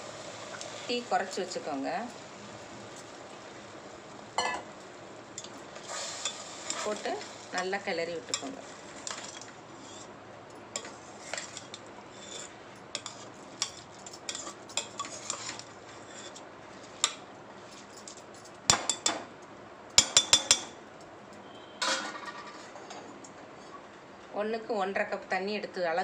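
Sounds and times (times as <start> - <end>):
spoon scraping rice: 5.4 - 7.6, 8.2 - 10.1, 10.8 - 18.2.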